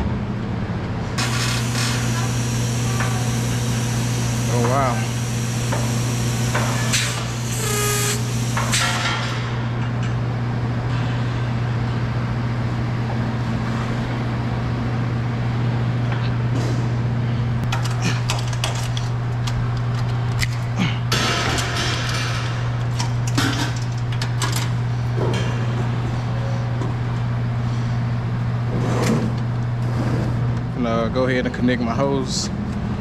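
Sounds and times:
low machine hum: 0:00.0 - 0:33.0.

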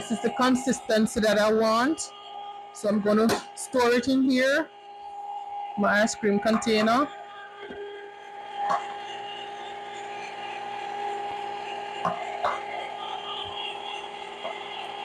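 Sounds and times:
ice cream maker motor humming: 0:05.8 - 0:15.0.

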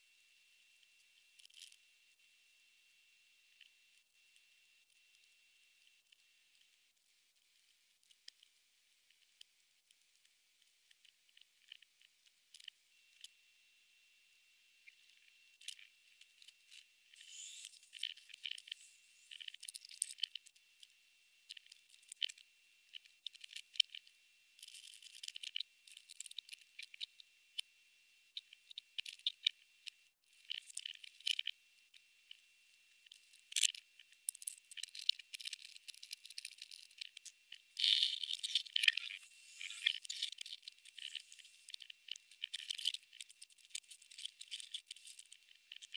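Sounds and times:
insect crunching and clicking: 0:17.2 - 0:20.5, 0:21.5 - 0:24.0, 0:24.6 - 0:27.1, 0:30.4 - 0:31.6, 0:33.0 - 0:45.9.

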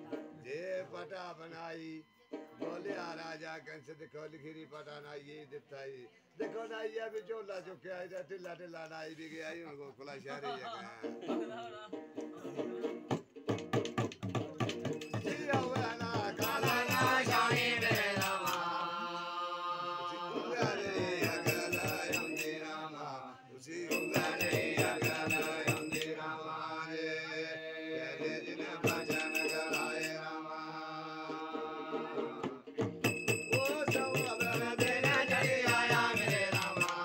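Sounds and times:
long-necked string instrument: 0:00.0 - 0:05.3, 0:14.8 - 0:37.0
frame drum beat: 0:12.7 - 0:18.7, 0:20.4 - 0:22.6, 0:23.9 - 0:26.1, 0:28.8 - 0:30.0, 0:32.4 - 0:37.0
jingling bells: 0:14.8 - 0:19.0, 0:20.8 - 0:23.0, 0:23.8 - 0:26.3, 0:28.8 - 0:30.5, 0:32.9 - 0:37.0
men chanting folk ballad: 0:15.1 - 0:32.6, 0:33.5 - 0:37.0.

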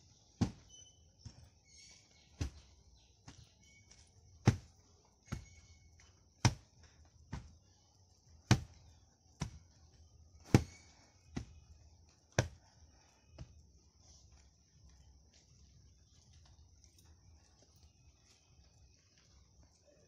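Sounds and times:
hand rammer pounding earth: 0:00.4 - 0:01.5, 0:04.4 - 0:05.8, 0:08.5 - 0:08.8.

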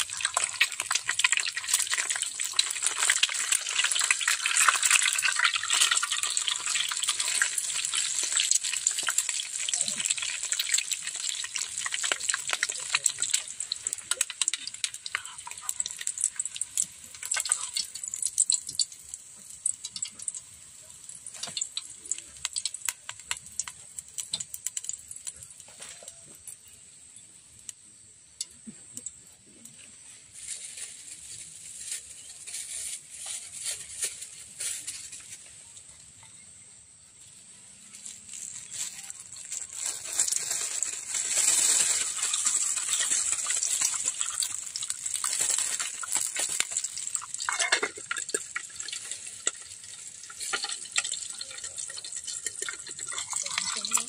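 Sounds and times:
water splashing out of a pot: 0:00.0 - 0:26.4, 0:37.8 - 0:54.0.

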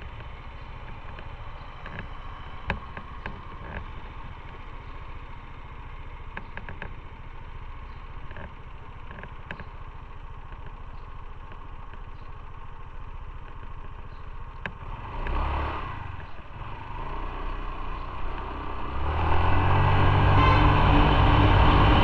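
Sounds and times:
motorcycle engine idling: 0:00.0 - 0:19.0
traffic rushing past: 0:14.9 - 0:22.0.

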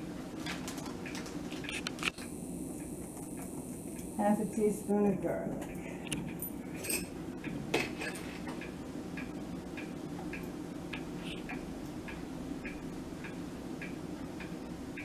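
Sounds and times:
low hum: 0:01.4 - 0:15.0
clock ticking: 0:08.5 - 0:15.0.

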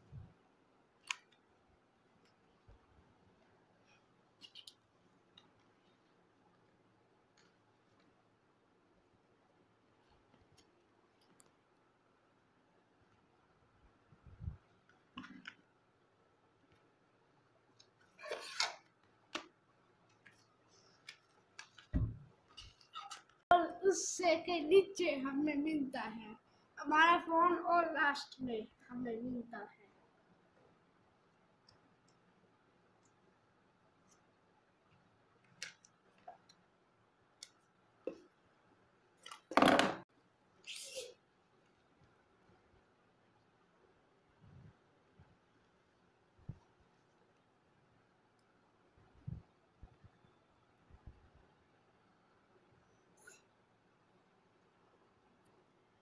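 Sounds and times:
dull thump: 0:21.9 - 0:22.2.

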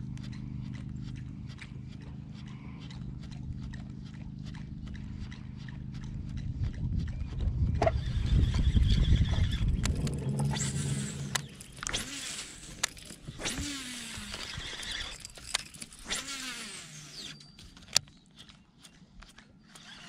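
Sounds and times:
fishing reel gears whirring: 0:07.8 - 0:20.0
rod and lure handling clicks: 0:09.8 - 0:16.2.

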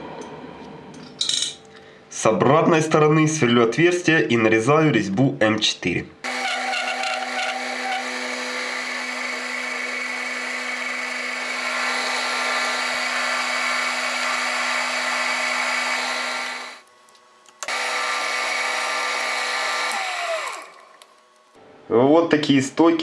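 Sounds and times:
lathe motor hum: 0:06.3 - 0:16.8, 0:17.6 - 0:21.2.

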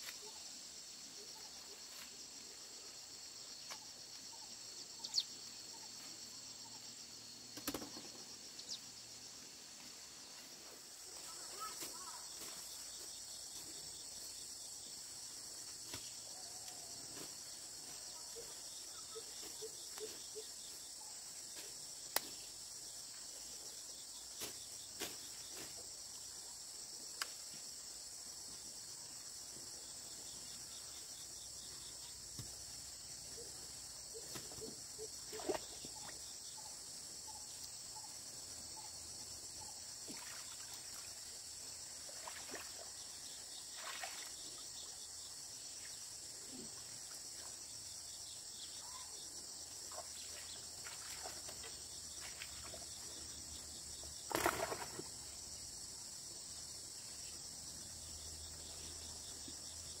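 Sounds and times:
high-pitched insect chorus: 0:00.0 - 1:00.0
water splashing from wading: 0:42.1 - 0:42.9, 0:43.7 - 0:44.4, 0:54.3 - 0:55.1.

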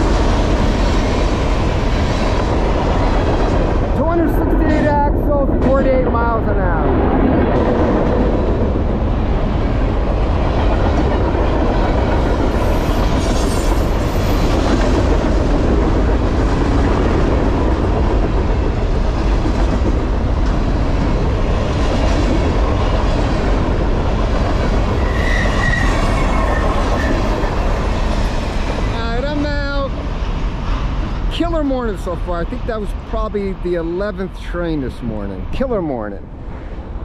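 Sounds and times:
train wheels rumbling on rails: 0:00.0 - 0:37.0
high wheel squeal: 0:25.0 - 0:27.6.

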